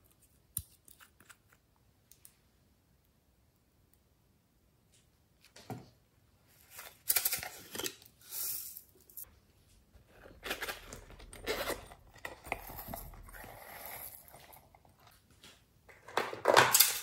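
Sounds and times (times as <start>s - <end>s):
silicone purse rustling: 10.0s - 15.1s.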